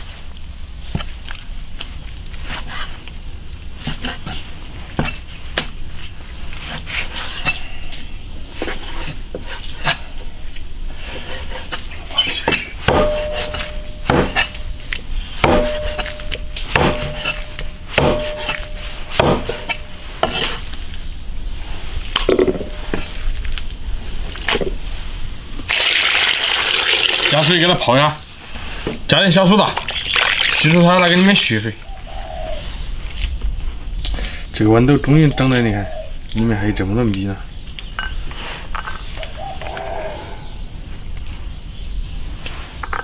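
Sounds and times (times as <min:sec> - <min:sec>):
cleaver chopping on wooden board: 0:12.4 - 0:14.6, 0:15.4 - 0:20.6.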